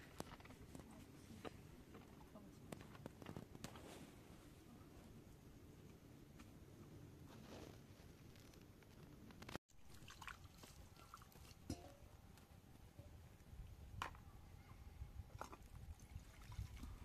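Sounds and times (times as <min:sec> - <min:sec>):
metal kettle and cups clinking: 0:11.6 - 0:12.1.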